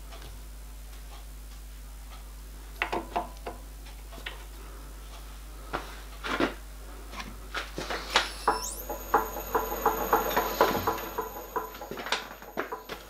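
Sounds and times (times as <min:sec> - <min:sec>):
low hum: 0:07.8 - 0:13.0.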